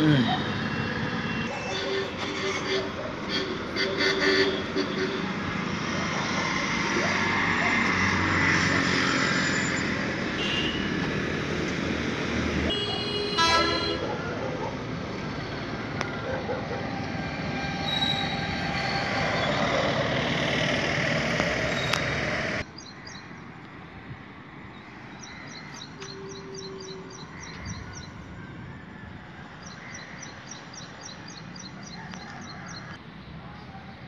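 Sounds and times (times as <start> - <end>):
street ambience: 0.0 - 34.0.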